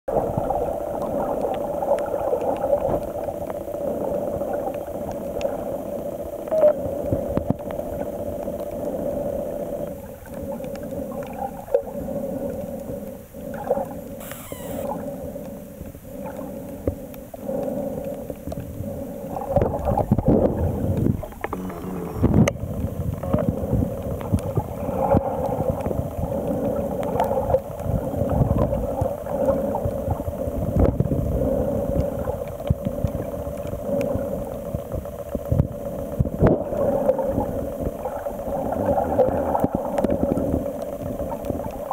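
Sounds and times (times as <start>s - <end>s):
muffled wash of water: 0.1s - 41.9s
small clicks: 14.2s - 15.0s.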